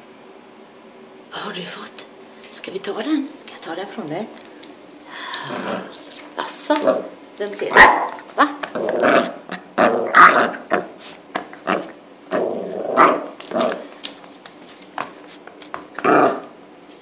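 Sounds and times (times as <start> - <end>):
small dog growling and yapping: 5.4 - 6.1, 7.8 - 13.9, 16.0 - 16.6.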